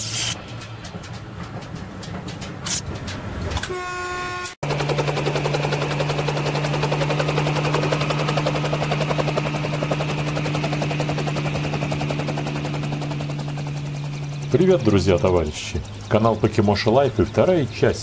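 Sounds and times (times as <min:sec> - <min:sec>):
electric train passing at speed: 0:00.0 - 0:18.0
horn-like tone: 0:03.6 - 0:04.6.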